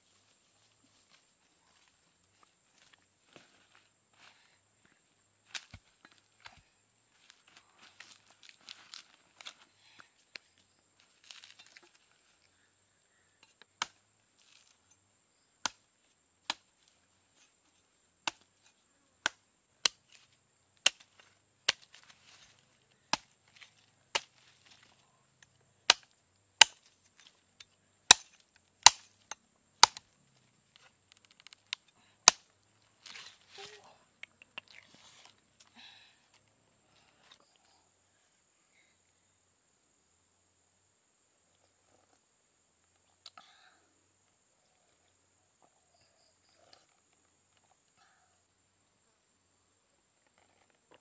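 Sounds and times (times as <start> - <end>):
knife chopping coconut husk: 23.0 - 24.4, 28.1 - 29.1, 29.8 - 30.0.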